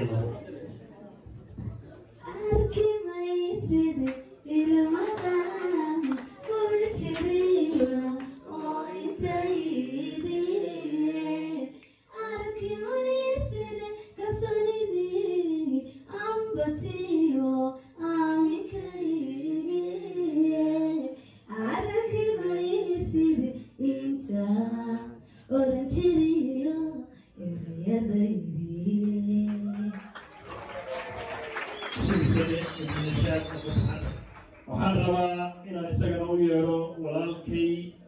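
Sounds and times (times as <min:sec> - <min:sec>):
singer breathing: 0:21.1 - 0:21.5.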